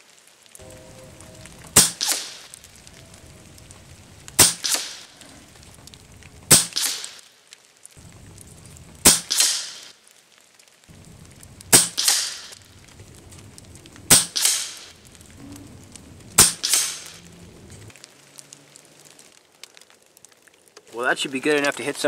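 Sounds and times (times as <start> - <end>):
air rifle shots: 1.8 - 2.5, 4.4 - 5.1, 6.5 - 7.2, 9.0 - 9.9, 11.7 - 12.6, 14.1 - 14.9, 16.4 - 17.2.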